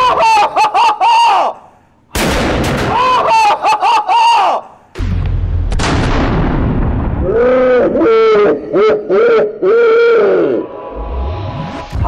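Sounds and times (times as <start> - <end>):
man yelling and whooping: 0.0 - 1.6, 3.0 - 4.7, 7.3 - 10.6.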